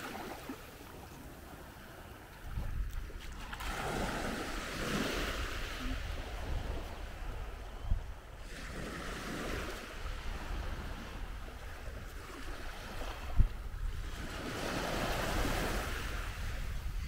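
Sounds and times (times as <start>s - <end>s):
surf waves breaking: 0.0s - 7.6s
wind rumbling on microphone: 1.4s - 17.0s.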